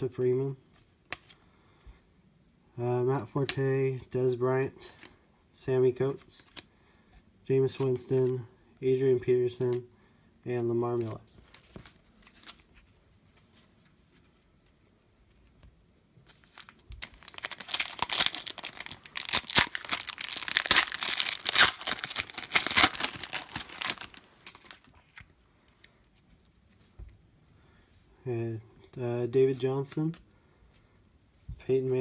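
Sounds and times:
foil wrapper tearing and crinkling: 0:16.5 - 0:24.8.

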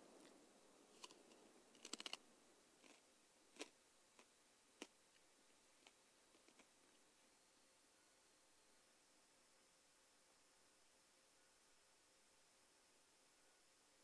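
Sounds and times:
faint scattered clicks: 0:00.0 - 0:03.0, 0:03.6 - 0:07.1.

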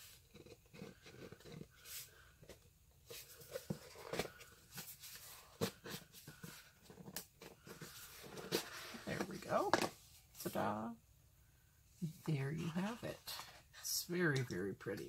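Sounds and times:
cardboard and paper rustling: 0:00.0 - 0:10.6.

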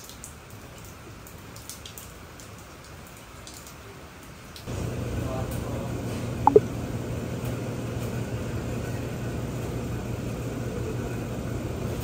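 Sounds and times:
low mechanical hum and rumble: 0:04.7 - 0:12.0.

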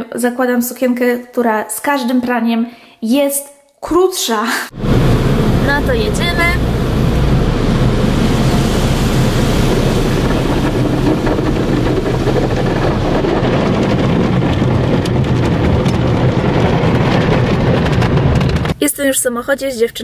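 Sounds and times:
car wash water jets spraying: 0:04.7 - 0:18.8.

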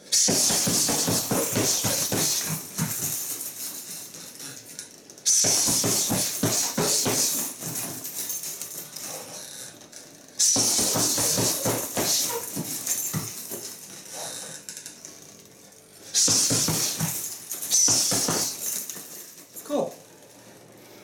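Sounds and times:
fists punching heavy bag: 0:00.1 - 0:03.9, 0:05.3 - 0:08.5, 0:10.4 - 0:13.8, 0:16.2 - 0:19.2
jingling rattle: 0:00.4 - 0:04.6, 0:05.4 - 0:09.4, 0:10.6 - 0:14.7, 0:16.2 - 0:19.6.

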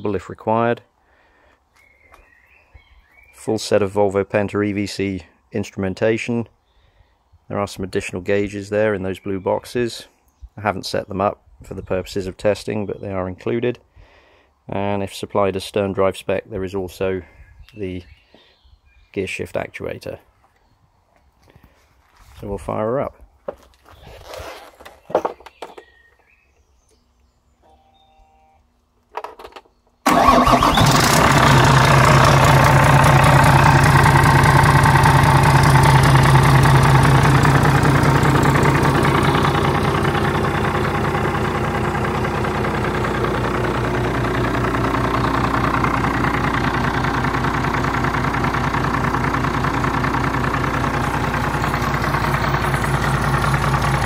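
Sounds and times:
diesel engine starting and idling: 0:30.0 - 0:54.0.

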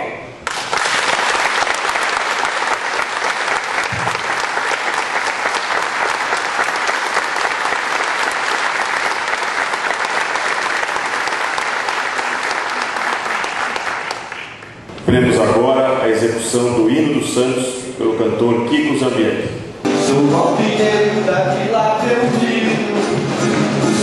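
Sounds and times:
audience applauding: 0:00.4 - 0:14.9.

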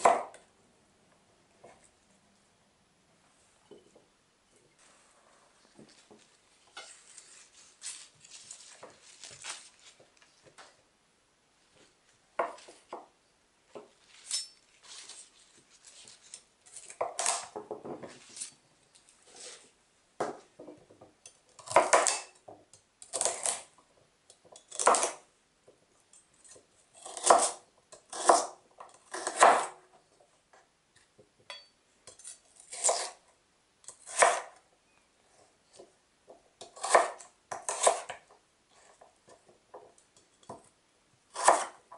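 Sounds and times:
knife chopping celery on board: 0:00.0 - 0:00.4, 0:21.6 - 0:22.3, 0:24.7 - 0:25.2, 0:27.0 - 0:29.8, 0:32.7 - 0:33.2, 0:34.0 - 0:34.5, 0:36.6 - 0:38.2, 0:41.3 - 0:41.8.

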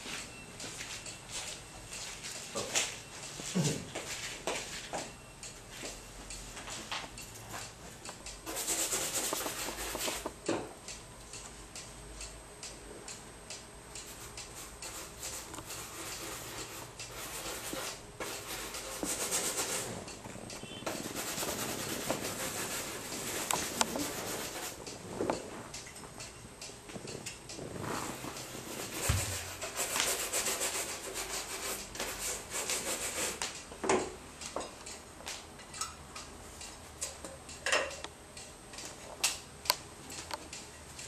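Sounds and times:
fur rubbing on wooden floor: 0:21.0 - 0:24.8, 0:27.6 - 0:31.0.

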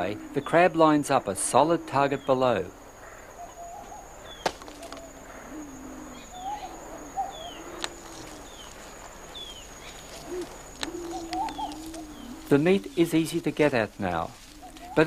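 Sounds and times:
doves cooing: 0:00.0 - 0:15.0
birds chirping and whistling: 0:03.2 - 0:15.0
coconut knocking on ground: 0:04.4 - 0:05.0.

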